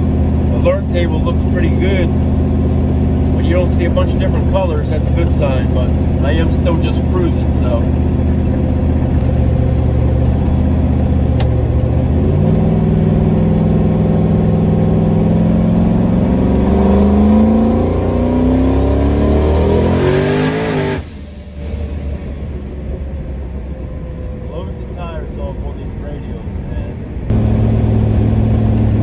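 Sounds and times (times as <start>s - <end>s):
car engine revving: 0.0s - 29.0s.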